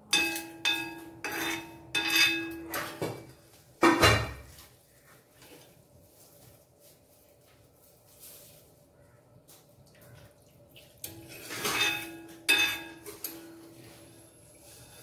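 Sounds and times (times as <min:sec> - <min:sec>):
metal spoon scraping and clinking: 0:00.0 - 0:03.0, 0:11.0 - 0:15.0.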